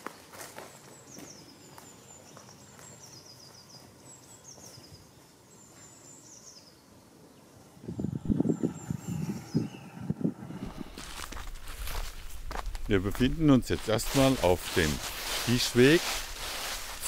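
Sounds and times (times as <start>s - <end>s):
quiet outdoor ambience: 0.0s - 17.0s
songbird chirping: 0.0s - 17.0s
loud close footsteps: 10.6s - 17.0s.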